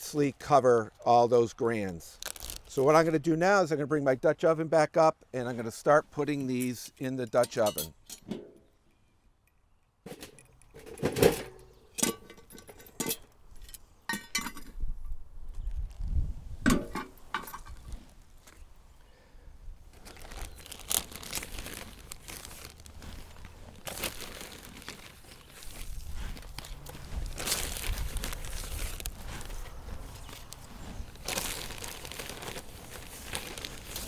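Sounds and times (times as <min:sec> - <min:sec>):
plastic bag crinkling: 0:02.2 - 0:02.8, 0:19.9 - 0:34.0
cast iron pot clanking on metal: 0:10.1 - 0:13.3, 0:14.1 - 0:14.8.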